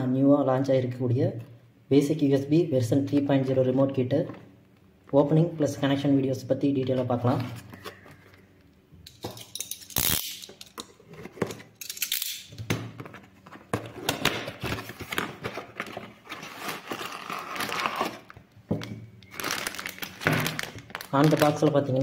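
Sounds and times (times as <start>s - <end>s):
plastic bag rustling: 19.3s - 22.0s.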